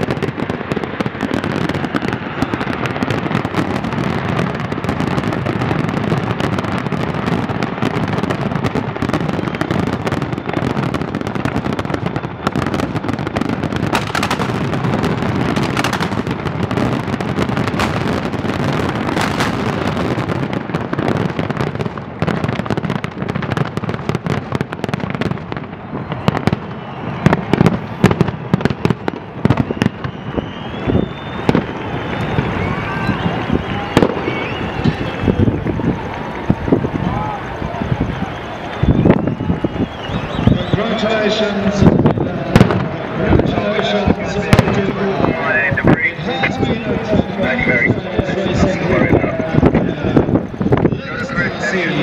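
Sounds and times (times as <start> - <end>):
firework shell booms: 0.0 - 33.0
fireworks crackling and popping: 0.0 - 52.0.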